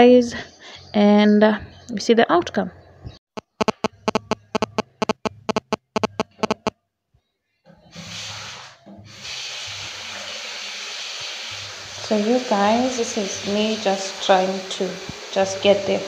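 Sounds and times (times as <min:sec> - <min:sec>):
rapid sharp clicks: 0:03.4 - 0:06.7
sink tap water running: 0:09.1 - 0:16.0.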